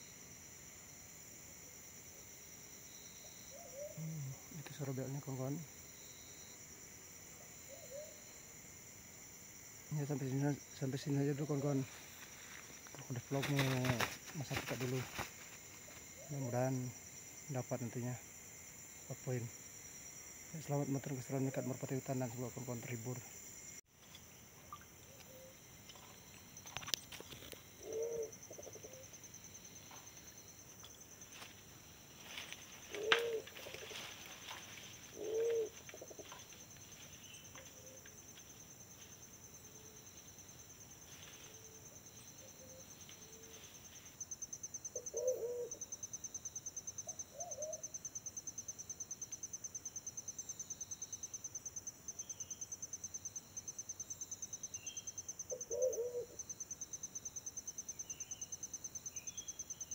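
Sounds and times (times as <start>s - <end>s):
high insect trill: 0.0s - 59.9s
pigeons cooing: 3.5s - 4.3s, 27.8s - 29.1s, 32.8s - 34.0s, 35.1s - 36.4s, 45.0s - 45.8s, 55.6s - 56.4s.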